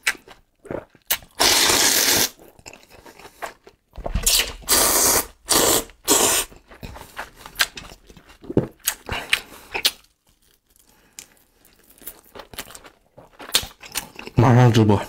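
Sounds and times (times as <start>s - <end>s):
wet chewing: 0.0s - 14.4s
person slurping noodles: 0.7s - 3.5s, 4.2s - 7.7s.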